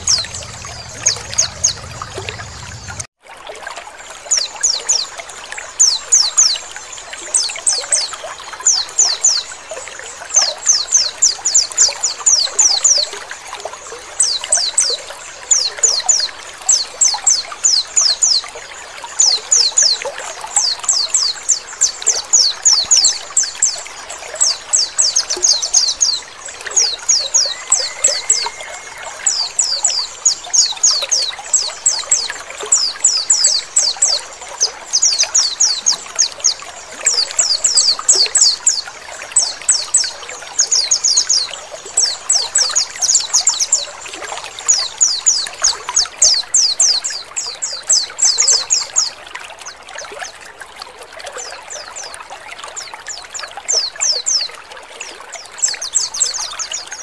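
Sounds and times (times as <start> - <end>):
bird chirping: 0.0 - 3.1, 24.4 - 38.8
trickling water: 0.0 - 57.0.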